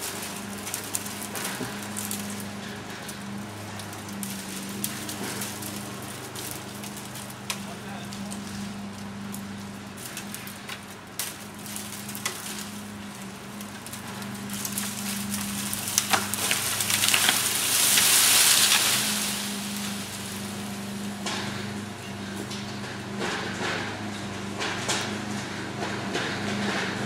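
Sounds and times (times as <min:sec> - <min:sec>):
tree falling through brush: 0:00.0 - 0:22.8
chainsaw idling: 0:00.0 - 0:24.1
tree trunk cracking with sharp snaps: 0:09.2 - 0:20.6.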